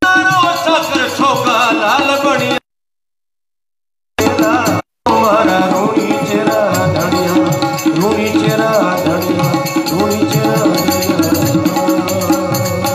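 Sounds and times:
man singing: 0.0s - 2.6s, 4.2s - 12.9s
tabla: 0.0s - 2.6s, 4.2s - 12.9s
harmonium: 4.2s - 12.9s.

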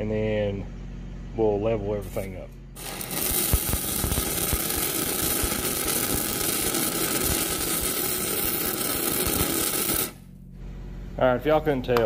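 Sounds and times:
welding arc crackling and sizzling: 2.1s - 10.4s.

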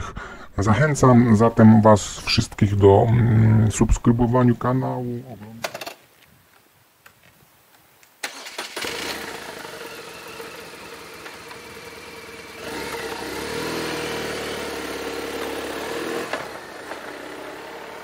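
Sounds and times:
motorcycle engine idling and revving: 8.7s - 18.0s.

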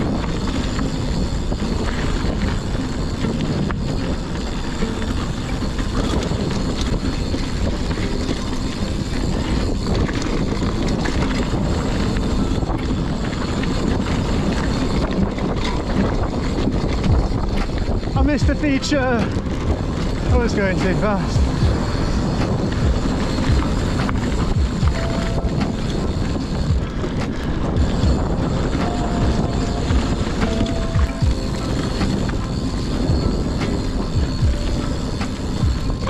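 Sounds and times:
bike clattering and rattling: 0.0s - 36.0s
tyres rumbling on dirt: 0.0s - 36.0s
wind rush on microphone: 0.0s - 36.0s.

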